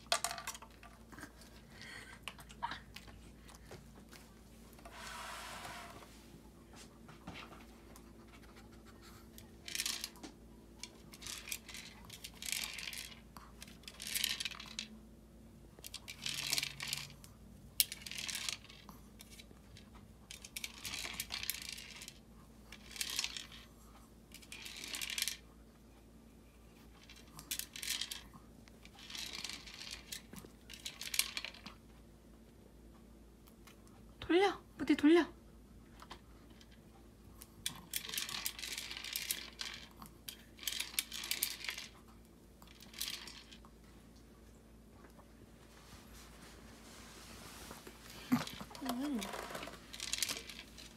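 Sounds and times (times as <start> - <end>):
plastic toy scraping and rattling: 9.4 - 14.9, 15.8 - 17.2, 17.8 - 23.7, 24.3 - 25.4, 26.8 - 31.7, 37.6 - 43.7, 47.6 - 50.9.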